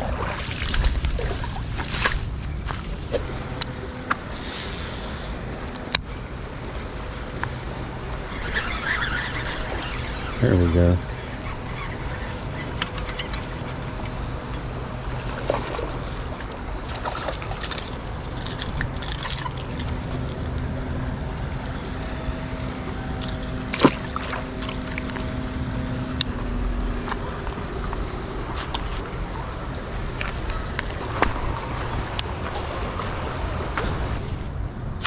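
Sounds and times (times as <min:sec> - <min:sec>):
traffic hum: 0:00.0 - 0:35.0.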